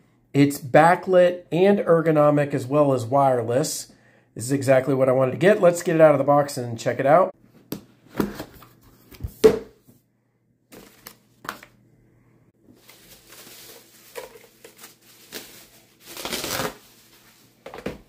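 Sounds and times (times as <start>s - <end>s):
bubble wrap crinkling: 12.7s - 17.7s.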